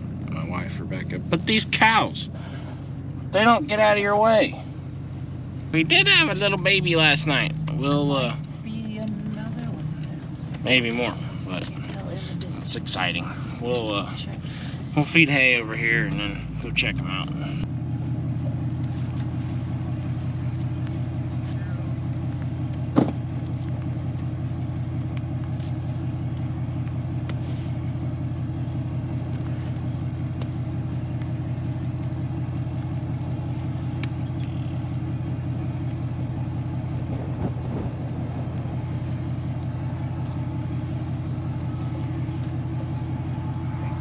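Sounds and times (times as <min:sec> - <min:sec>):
truck engine idling: 0:00.0 - 0:44.0.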